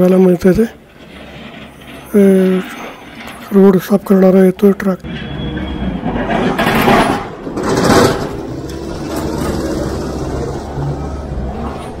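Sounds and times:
rushes of noise: 5.2s - 12.0s
diesel engine running: 7.5s - 12.0s.

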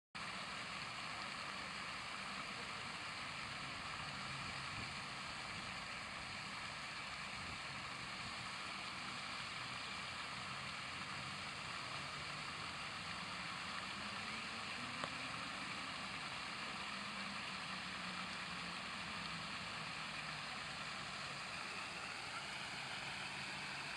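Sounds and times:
fountain water splashing onto pond: 0.2s - 23.9s.

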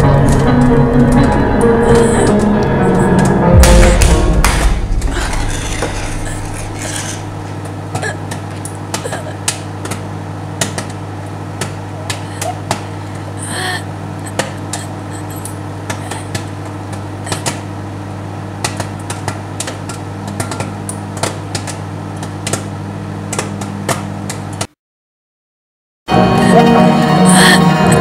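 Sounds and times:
popcorn popping: 3.1s - 12.9s, 18.6s - 24.7s
microwave oven humming: 5.9s - 24.7s.

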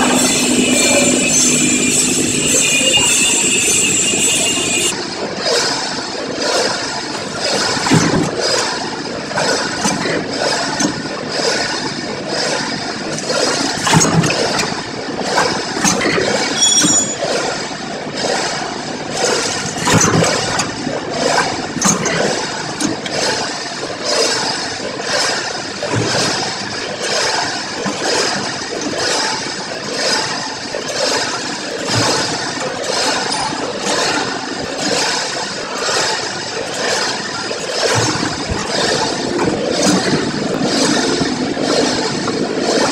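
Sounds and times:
brief high tone: 0.0s - 4.9s, 16.6s - 17.2s.

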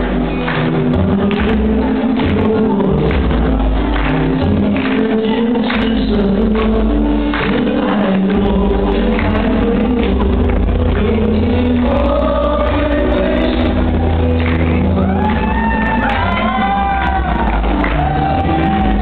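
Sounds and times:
backing music with heavy bass: 0.0s - 19.0s
group of voices singing: 0.0s - 19.0s.

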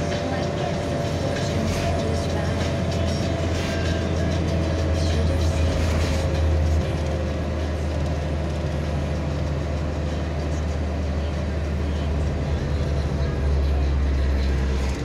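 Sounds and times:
road and engine rumble: 0.0s - 15.0s.

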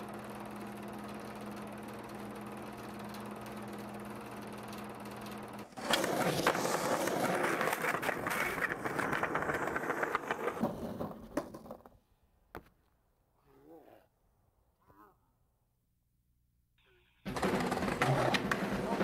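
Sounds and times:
skateboard wheels rolling on pavement: 4.6s - 12.1s, 17.3s - 19.0s
skateboard wheels clacking on cracks: 5.7s - 12.0s, 17.3s - 19.0s.

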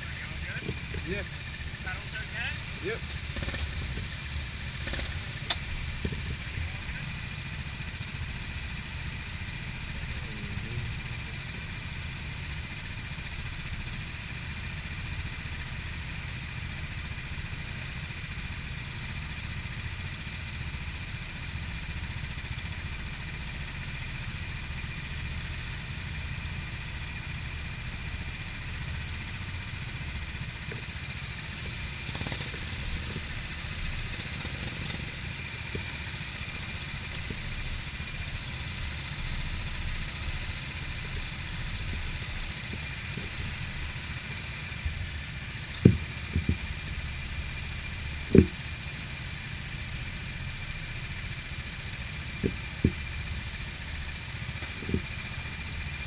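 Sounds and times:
go-kart engines idling: 0.0s - 56.0s.

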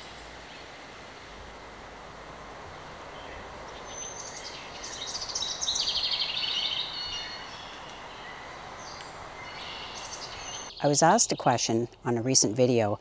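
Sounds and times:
outdoor background hiss: 0.0s - 13.0s
songbird chirping and trilling: 3.0s - 13.0s.

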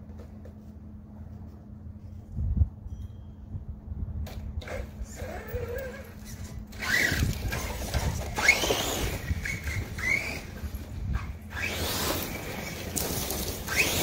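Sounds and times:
electric motor whining: 4.6s - 14.0s.

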